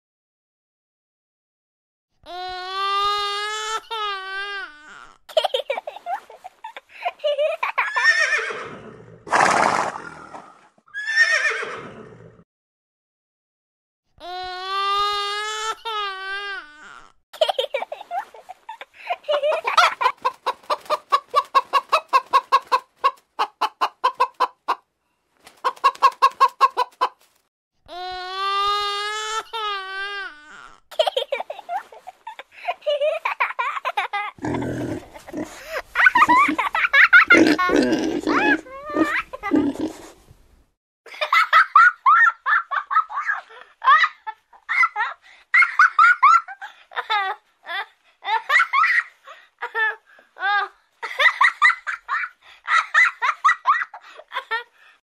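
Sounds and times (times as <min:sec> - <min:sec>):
hen clucking: 0:20.2 - 0:24.7
baby giggling: 0:30.9 - 0:39.8.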